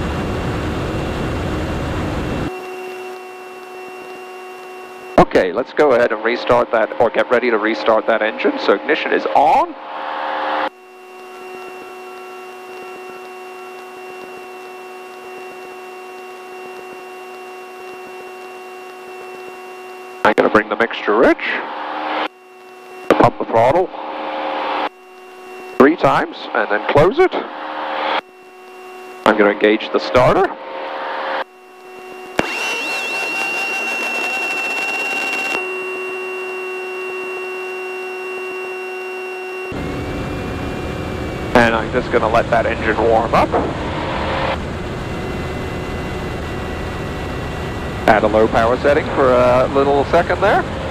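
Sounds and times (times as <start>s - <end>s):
airplane cabin engine drone: 0.0s - 50.9s
steady high beep-like tone: 2.5s - 50.6s
click: 12.1s - 14.3s, 15.1s - 19.4s.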